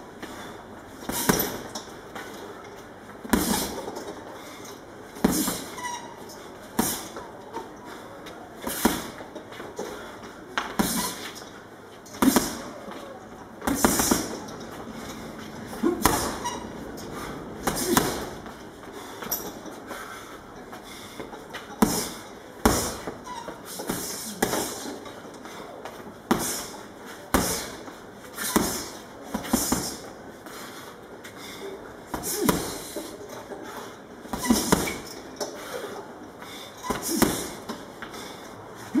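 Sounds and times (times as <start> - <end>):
gloves punching a heavy bag: 0.3 - 1.7, 3.2 - 3.8, 5.2 - 5.8, 6.7 - 7.2, 8.6 - 9.2, 10.6 - 11.3, 12.2 - 12.8, 13.6 - 16.6, 17.2 - 18.6, 21.8 - 24.8, 26.3 - 30.1, 32.1 - 33.0, 34.3 - 35.1, 36.9 - 37.6.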